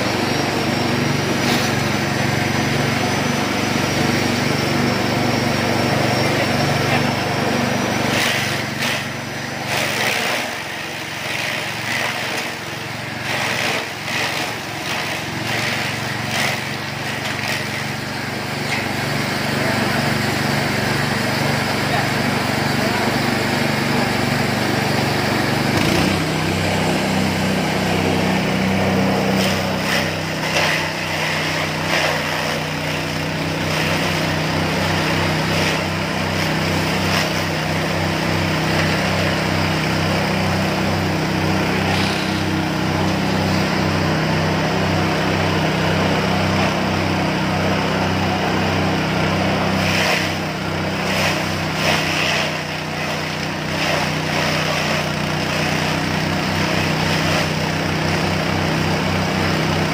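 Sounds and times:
grass chopper engine running: 0.0s - 59.9s
grass hitting blades: 28.8s - 37.4s, 49.7s - 57.6s.

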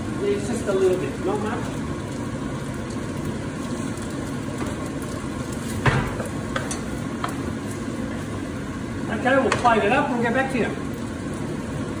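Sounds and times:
noodles sizzling in a wok: 0.0s - 12.0s.

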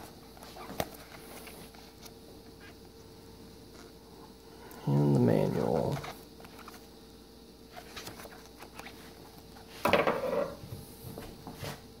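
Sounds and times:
paper booklet handling noise: 0.0s - 3.0s, 5.6s - 6.9s, 7.7s - 10.0s
paper rustle and knock on table: 9.8s - 10.6s.

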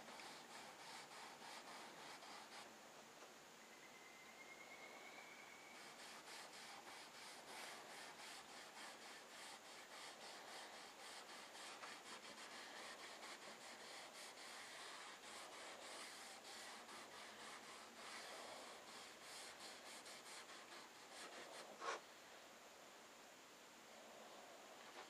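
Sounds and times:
cloth rubbing on wood: 0.0s - 2.7s, 5.7s - 22.0s.

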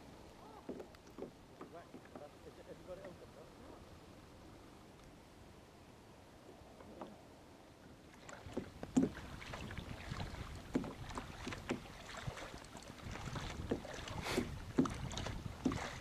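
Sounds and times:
paddle splashing in water: 0.0s - 3.2s, 8.0s - 16.0s
wind rumbling on microphone: 8.3s - 16.0s.

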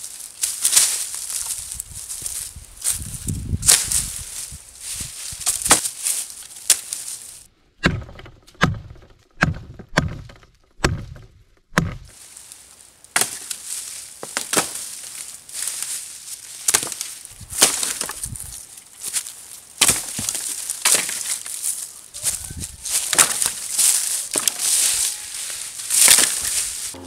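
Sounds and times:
rustling brush: 0.0s - 7.5s, 12.1s - 27.0s
axe chopping wood: 7.8s - 12.1s, 13.2s - 13.6s, 14.2s - 14.8s, 16.7s - 17.0s, 17.6s - 18.2s, 19.8s - 21.4s, 23.1s - 23.7s, 24.3s - 24.6s, 26.0s - 26.5s.

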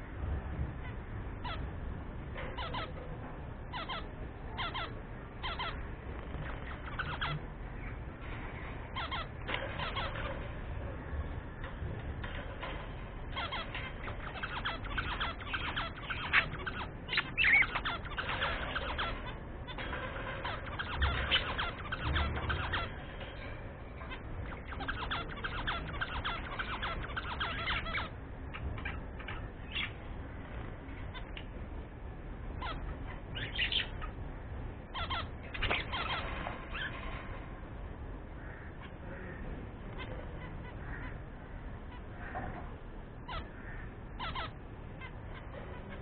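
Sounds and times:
budgerigars chattering: 2.5s - 3.0s, 3.7s - 7.5s, 8.9s - 10.4s, 13.3s - 23.1s, 24.0s - 30.0s, 32.5s - 34.2s, 34.9s - 37.1s, 43.2s - 46.0s.

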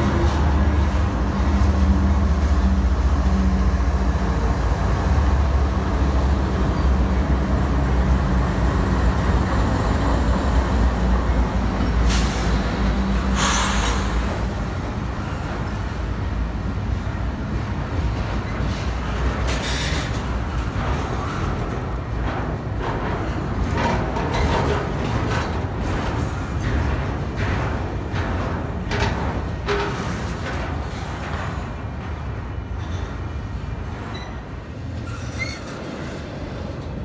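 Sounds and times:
diesel locomotive engines droning: 0.0s - 37.0s.

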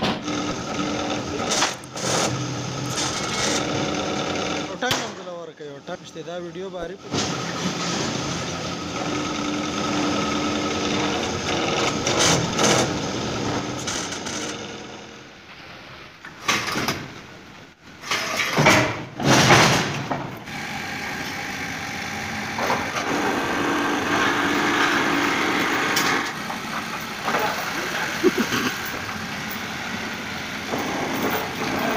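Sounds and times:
machinery humming: 20.3s - 31.9s.

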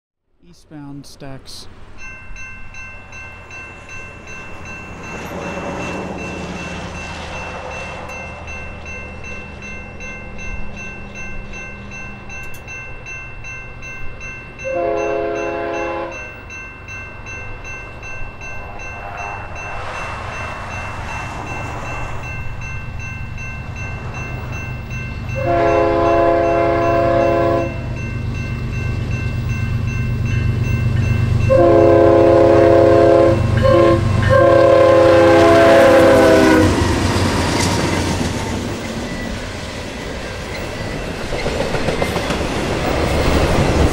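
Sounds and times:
train air horn: 14.6s - 16.2s, 25.4s - 27.9s, 31.5s - 36.8s.

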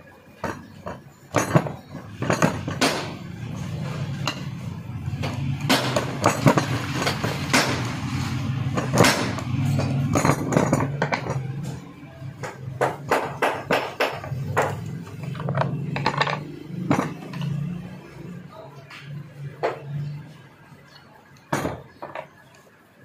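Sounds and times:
metal parts clinking on workbench: 0.4s - 4.6s, 5.2s - 7.8s, 8.7s - 11.8s, 13.2s - 17.7s.

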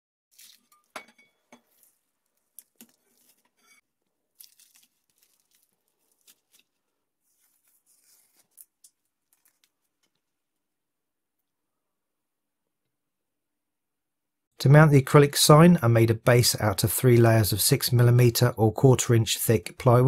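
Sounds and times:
tape peeling off: 4.4s - 10.2s.

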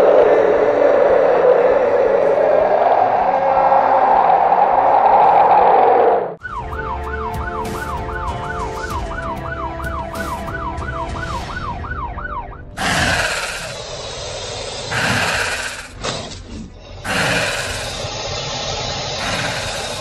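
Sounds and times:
low rumble: 0.0s - 6.5s
fast police siren: 6.4s - 12.8s
harsh dinosaur roar: 12.8s - 13.8s, 14.9s - 16.2s, 17.0s - 18.0s, 19.2s - 20.0s.

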